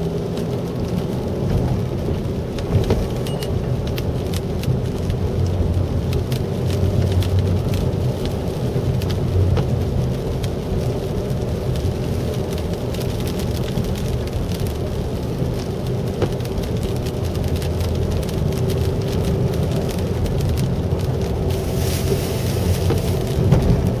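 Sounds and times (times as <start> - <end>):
engine and tyre rumble: 0.0 - 24.0
raindrops ticking on windshield: 0.0 - 24.0
brief hiss: 21.6 - 23.2.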